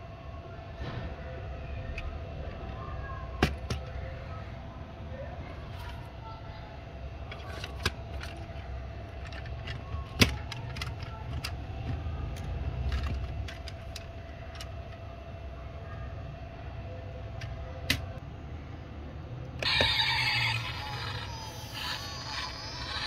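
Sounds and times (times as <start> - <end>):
metal toy cars clicking: 7.3 - 15.0.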